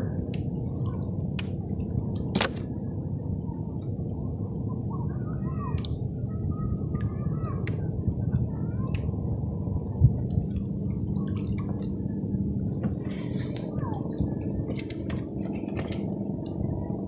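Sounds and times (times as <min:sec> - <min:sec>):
water lapping against boat hull: 0:05.7 - 0:17.0
small clicks: 0:12.8 - 0:16.6.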